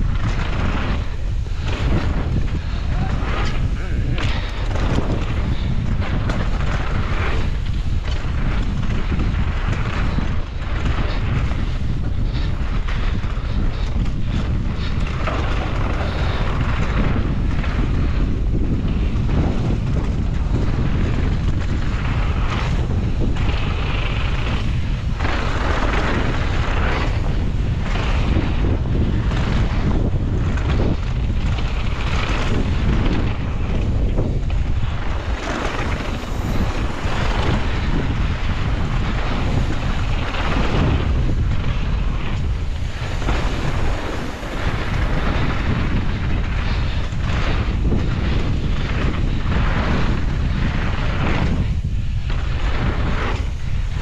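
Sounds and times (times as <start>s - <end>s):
bike rattles and knocks: 0.0s - 54.0s
tyres rolling over dirt trail: 0.0s - 54.0s
wind buffeting microphone: 0.0s - 54.0s.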